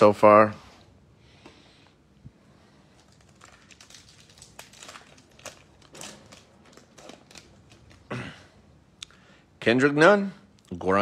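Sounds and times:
plastic wrapper crinkling: 0:02.9 - 0:08.1.

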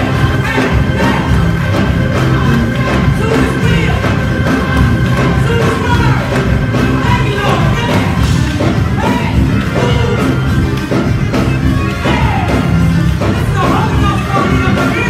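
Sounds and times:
band playing worship music: 0:00.0 - 0:15.0
voices singing: 0:00.0 - 0:15.0.

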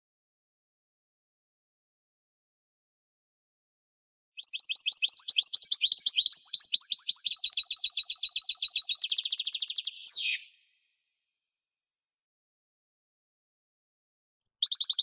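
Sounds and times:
bird singing high twittering trill: 0:04.4 - 0:10.6, 0:14.6 - 0:15.0.

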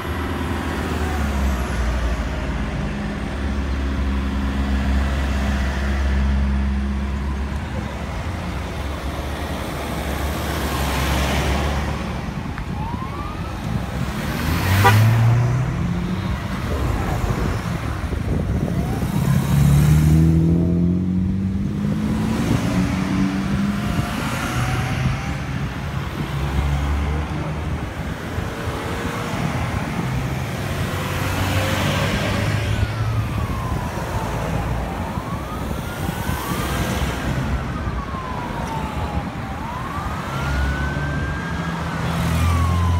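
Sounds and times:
sirens wailing: 0:00.0 - 0:42.9
cars driving past: 0:14.0 - 0:42.9.

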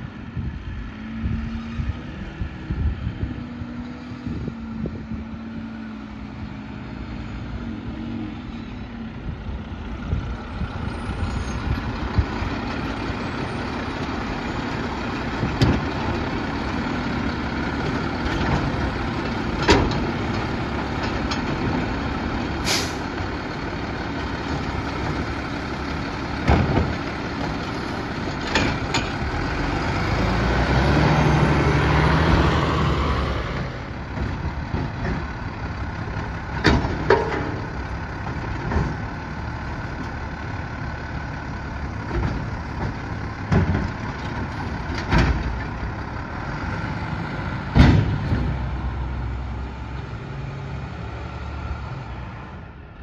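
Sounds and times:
garbage truck engine running: 0:07.9 - 0:51.3
air brake hissing: 0:22.6 - 0:23.1
metal arm clanking and knocking: 0:28.2 - 0:29.4, 0:36.5 - 0:37.8
engine revving: 0:29.1 - 0:33.9.

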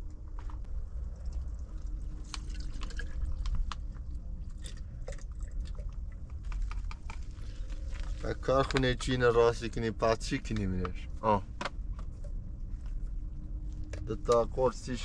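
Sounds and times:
steady low rumble: 0:00.0 - 0:15.0
water dripping and splashing: 0:00.9 - 0:07.1.

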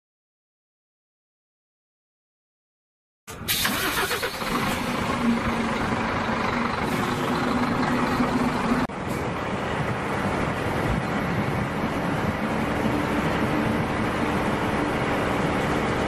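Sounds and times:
road and wind noise: 0:03.3 - 0:16.0
vehicle engine hum: 0:03.3 - 0:16.0.

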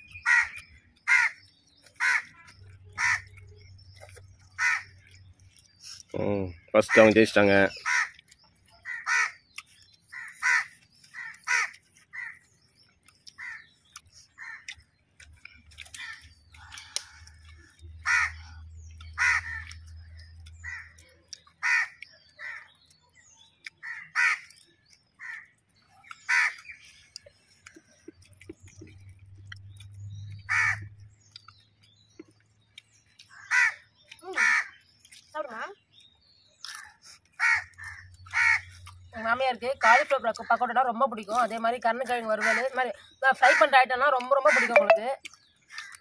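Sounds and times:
crows cawing: 0:00.2 - 0:03.4, 0:04.6 - 0:05.1, 0:06.9 - 0:08.2, 0:08.8 - 0:09.4, 0:10.1 - 0:12.5, 0:13.3 - 0:13.7, 0:14.4 - 0:14.8, 0:16.0 - 0:18.6, 0:19.2 - 0:19.8, 0:20.6 - 0:21.0, 0:21.6 - 0:22.7, 0:23.8 - 0:24.6, 0:25.2 - 0:25.6, 0:26.2 - 0:26.7, 0:30.5 - 0:30.9, 0:33.3 - 0:34.8, 0:36.8 - 0:38.8, 0:42.3 - 0:42.8, 0:44.4 - 0:44.8, 0:45.7 - 0:46.0.

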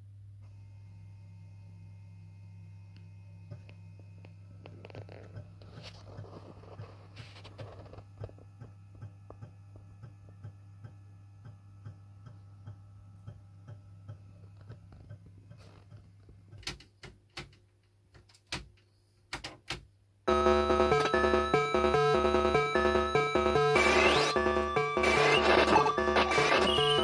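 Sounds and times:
floppy drive humming and ticking: 0:20.3 - 0:27.0
video game music: 0:20.3 - 0:27.0.

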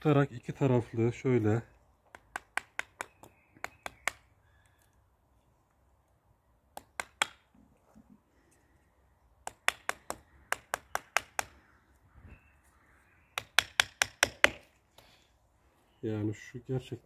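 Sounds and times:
small hammer tapping a nail: 0:02.1 - 0:04.2, 0:13.4 - 0:14.6.

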